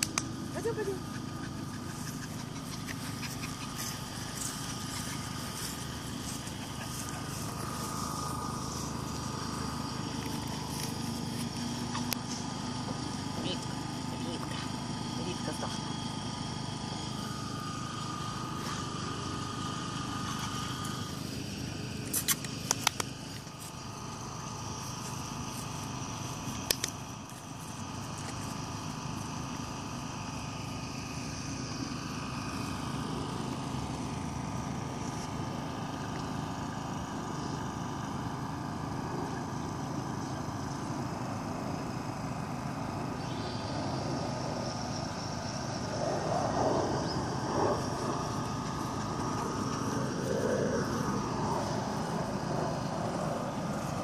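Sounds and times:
sharp clicks: 0.0 - 0.3, 22.1 - 23.2, 26.6 - 27.0
distant engines droning: 0.0 - 54.0.

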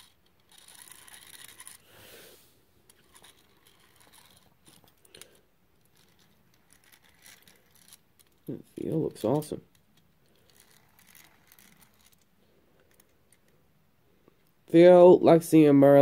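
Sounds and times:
toy scratching over carpet: 0.0 - 5.0, 5.8 - 8.4, 10.3 - 12.3.

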